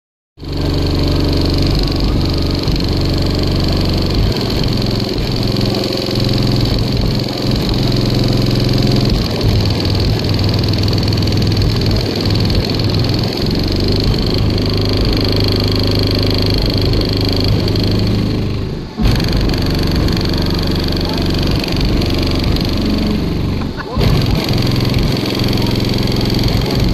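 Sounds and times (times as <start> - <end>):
subwoofers playing deep bass: 0.4 - 26.9.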